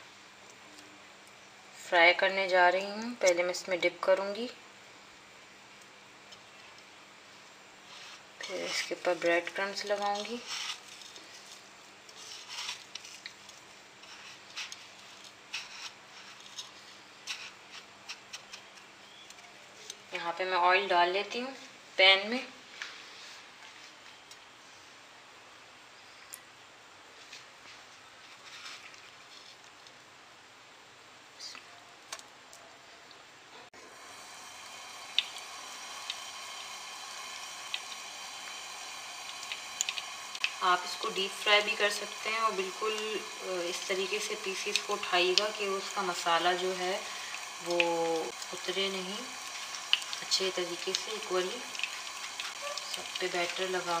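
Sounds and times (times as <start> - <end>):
fish sizzling in oil: 7.8 - 18.4, 33.8 - 54.0
breadcrumbs rustling and crunching: 7.9 - 18.8
oil popping: 34.4 - 54.0.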